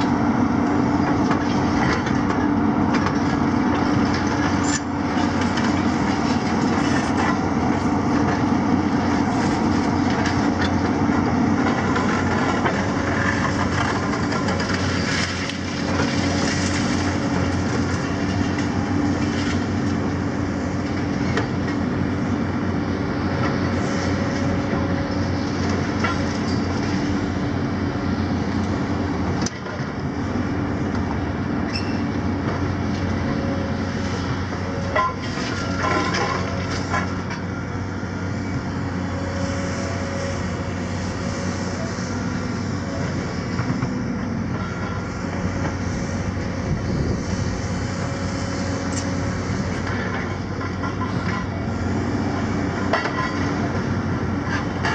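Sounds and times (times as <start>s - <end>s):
excavator diesel engines: 0.0s - 54.9s.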